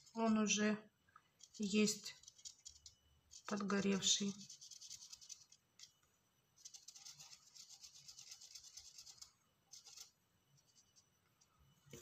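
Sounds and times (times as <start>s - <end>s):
marker scratching on porcelain: 1.4s - 6.0s, 6.6s - 11.2s.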